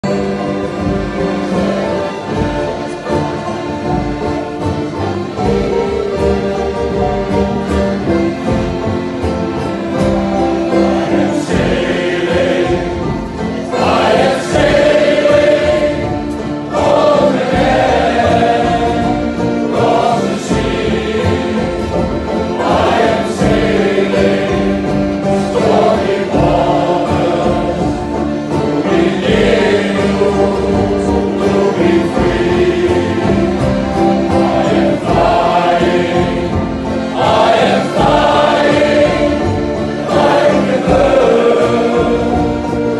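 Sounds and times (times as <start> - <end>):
male choir singing: 0.0 - 42.9.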